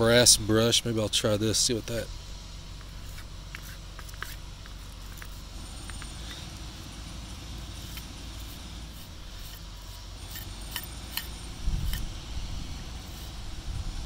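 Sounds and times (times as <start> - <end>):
wire brush scratching metal: 2.8 - 13.8.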